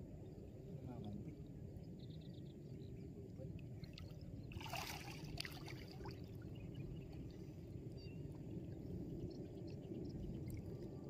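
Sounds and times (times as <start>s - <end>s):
water trickling around boat: 3.4s - 11.0s
steady low rumble: 5.6s - 11.0s.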